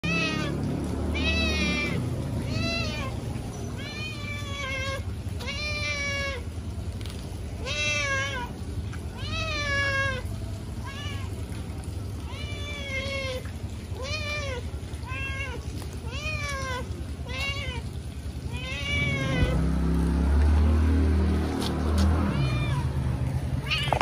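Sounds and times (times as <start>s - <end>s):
cat meowing: 0.0s - 6.4s, 7.6s - 8.5s, 9.1s - 10.2s, 10.8s - 11.4s, 12.2s - 17.9s, 18.5s - 19.6s, 22.2s - 23.0s, 23.6s - 24.0s.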